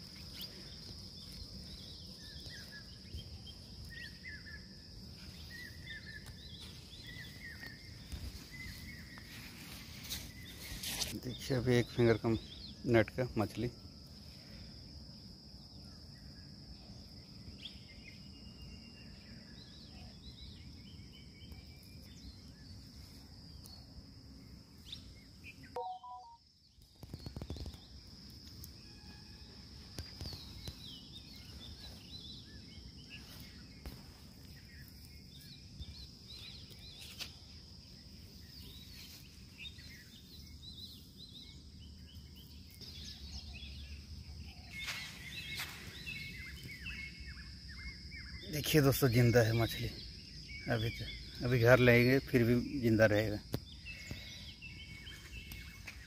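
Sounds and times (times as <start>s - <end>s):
bird chirps: 0.1s - 13.8s, 24.8s - 28.0s, 30.0s - 56.0s
high-pitched insect drone: 28.5s - 41.7s.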